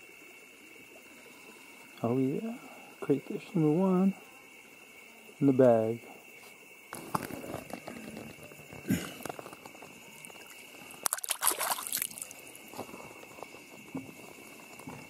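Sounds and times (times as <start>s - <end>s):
hand splashing in shallow water: 10.4s - 12.5s.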